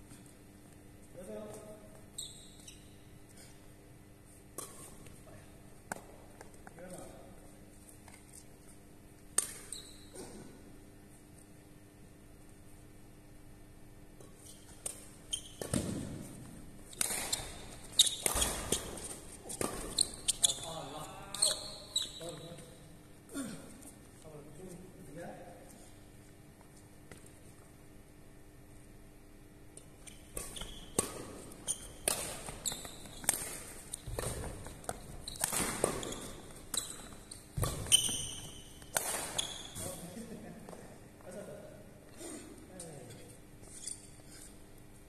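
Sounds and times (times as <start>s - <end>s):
sneakers squeaking: 0.1s - 10.8s, 14.2s - 24.0s, 29.8s - 41.4s
racket hitting shuttlecock: 14.8s - 20.0s, 30.3s - 39.9s.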